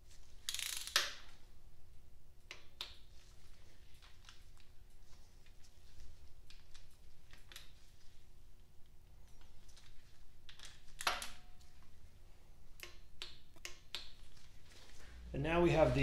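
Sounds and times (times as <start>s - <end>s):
wrench clicking on bolts: 0.5s - 1.2s.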